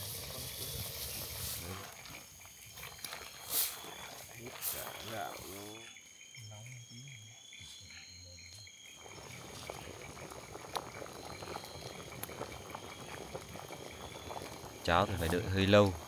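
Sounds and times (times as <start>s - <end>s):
pot bubbling: 0.0s - 6.0s, 8.8s - 16.0s
night insects and frogs: 0.0s - 16.0s.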